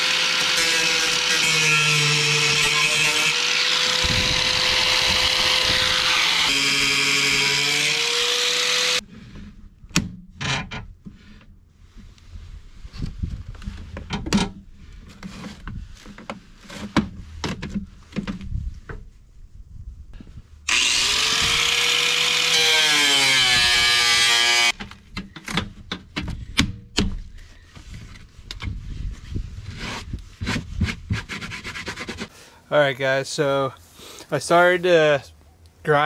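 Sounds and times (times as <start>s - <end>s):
angle grinder cutting plastic: 0.0s - 9.0s, 20.7s - 24.8s.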